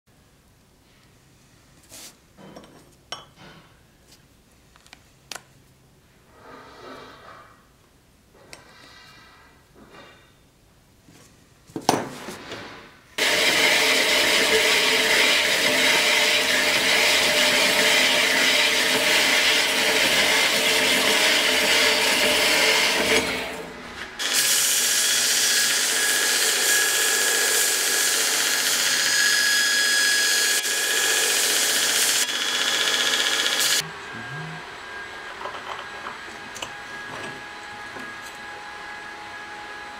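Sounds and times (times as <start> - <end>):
bandsaw cutting steel: 13.2 - 34.4
belt grinder whine: 13.2 - 39.0.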